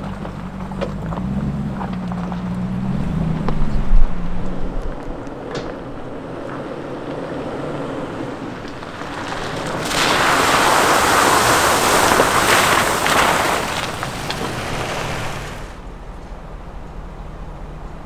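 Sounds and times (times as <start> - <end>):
tyres crunching on gravel: 0.0 - 16.4
low engine hum: 0.0 - 18.0
stones popping: 8.6 - 15.7.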